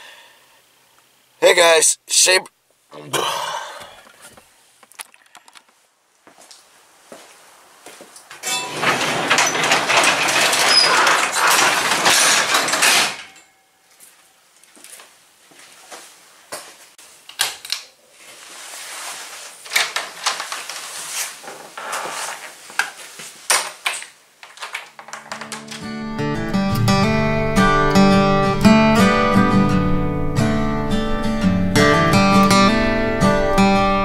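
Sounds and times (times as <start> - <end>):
shed door scraping rattle: 8.4 - 13.4
knocks and clicks of handling: 22.8 - 26.0.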